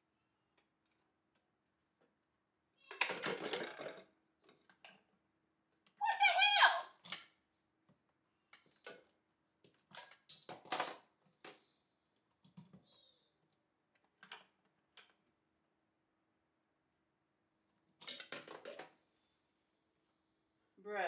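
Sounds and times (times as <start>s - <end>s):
plastic clicks and knocks: 18.0s - 19.0s.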